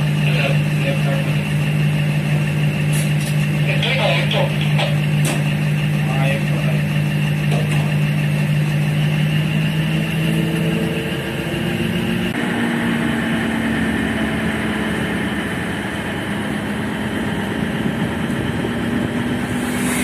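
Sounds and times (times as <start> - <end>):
train engine humming: 0.0 - 20.0.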